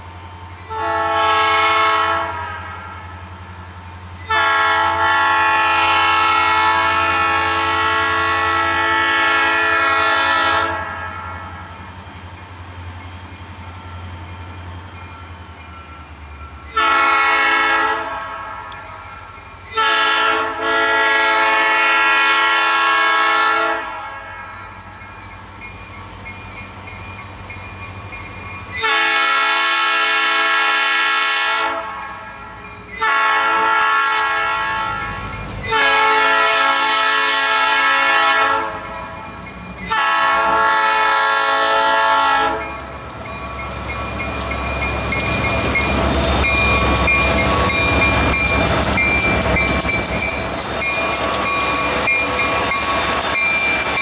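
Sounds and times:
locomotive air horn blasts: 0.7s - 3.1s, 4.3s - 11.4s, 16.7s - 18.9s, 19.7s - 24.5s, 28.8s - 32.0s, 33.0s - 38.9s, 39.9s - 42.7s.

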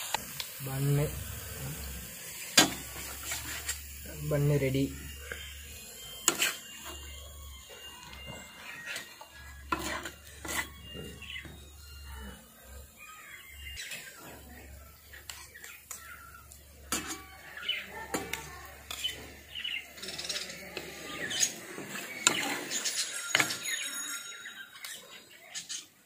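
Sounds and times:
birds chirping: 0.0s - 26.0s
metal spatula scraping steel plate: 2.5s - 4.7s, 5.3s - 12.6s, 16.8s - 24.2s.

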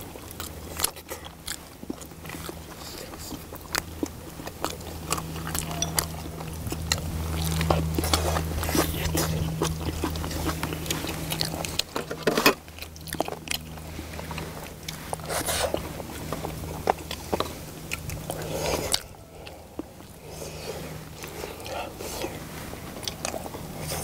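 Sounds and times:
people chewing food: 0.0s - 24.0s
steady low hum: 0.0s - 24.0s.

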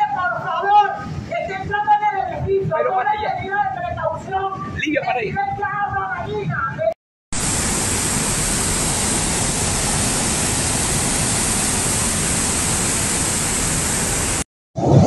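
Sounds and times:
torrent of water rushing: 7.4s - 15.0s.

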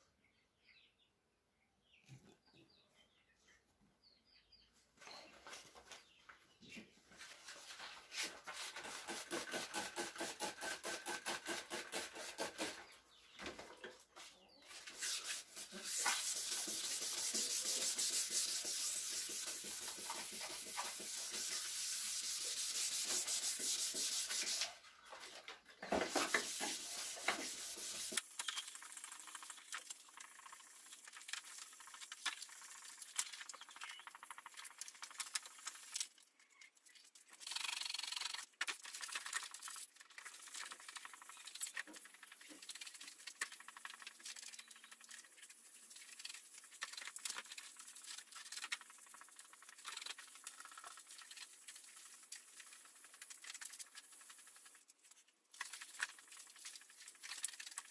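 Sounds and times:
sandpaper rubbing on plastic: 7.4s - 12.9s, 14.8s - 24.9s, 26.0s - 33.4s.

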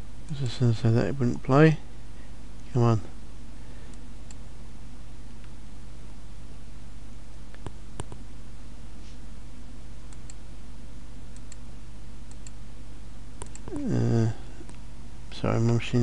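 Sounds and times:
low steady hum: 0.0s - 16.0s
computer mouse clicks: 7.5s - 8.2s, 10.1s - 10.4s, 11.4s - 11.6s, 12.3s - 12.6s, 13.4s - 13.8s.

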